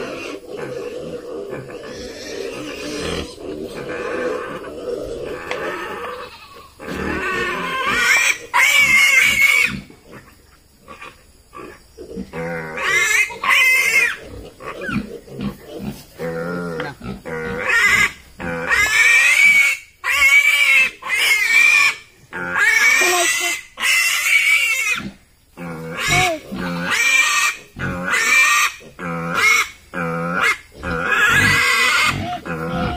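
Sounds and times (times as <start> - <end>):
piglet squealing: 5.4 - 9.8, 17.6 - 25.1, 25.9 - 29.7, 30.4 - 32.9.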